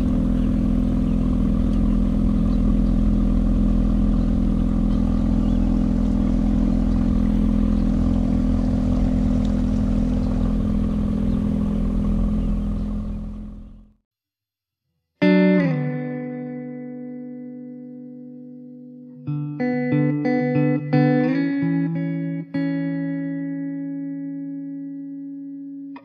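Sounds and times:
outboard motor running: 0.0s - 14.0s.

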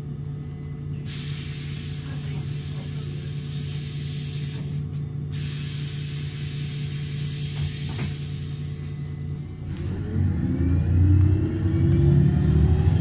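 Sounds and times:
bus diesel engine idling: 0.0s - 10.8s
compressed air hiss: 1.1s - 8.8s.

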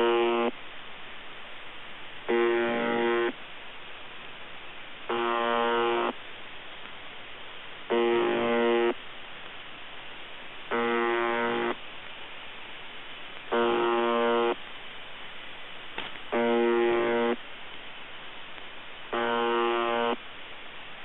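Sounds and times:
harsh pitched radio buzz: 0.0s - 0.6s, 2.3s - 3.4s, 5.1s - 6.2s, 7.9s - 9.0s, 10.7s - 11.8s, 13.5s - 14.6s, 16.3s - 17.4s, 19.1s - 20.2s
fluttering radio static: 10.7s - 11.8s, 13.5s - 14.6s, 16.0s - 17.4s.

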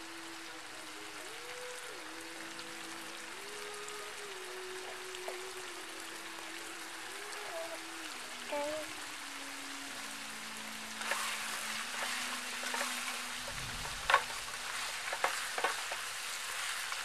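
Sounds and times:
meat sizzling in a pan: 0.0s - 17.0s
metal spatula scraping pan: 11.0s - 16.0s.

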